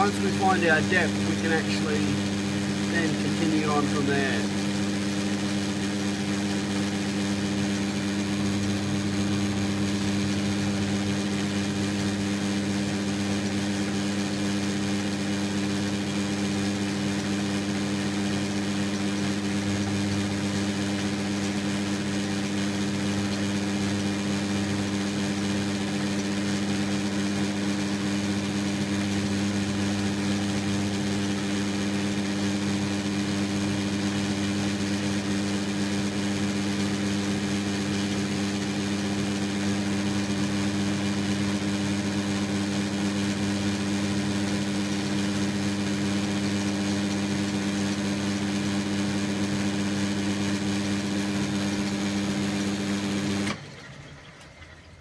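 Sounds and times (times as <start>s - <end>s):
metal lathe humming: 0.0s - 16.5s.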